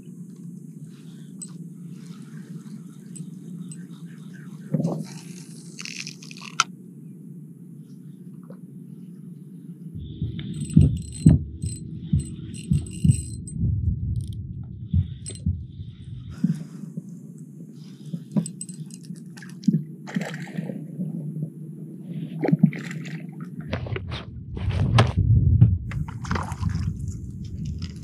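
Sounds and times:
fishing reel clicking: 0:05.3 - 0:06.7, 0:10.5 - 0:13.6, 0:18.4 - 0:19.4
water slapping against kayak hull: 0:25.9 - 0:27.2.

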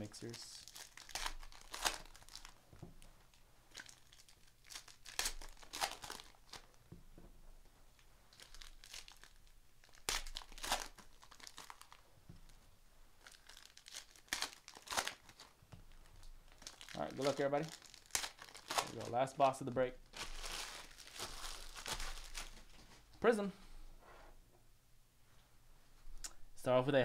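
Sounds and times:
foil wrappers tearing and crinkling: 0:00.6 - 0:02.6, 0:03.7 - 0:06.7, 0:08.3 - 0:12.0, 0:13.2 - 0:19.4, 0:20.0 - 0:22.7
handling of cards: 0:13.2 - 0:23.2.

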